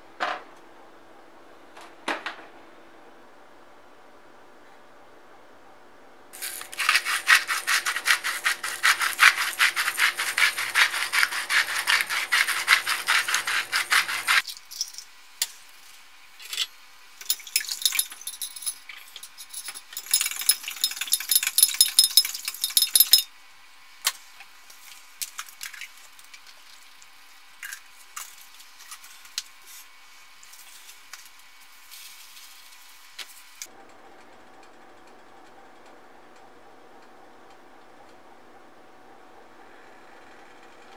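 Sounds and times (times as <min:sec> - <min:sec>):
fork beating egg in glass: 0:06.4 - 0:14.4, 0:20.0 - 0:23.3
loud rasping strokes: 0:06.4 - 0:14.4
light taps and clinks: 0:17.2 - 0:23.3.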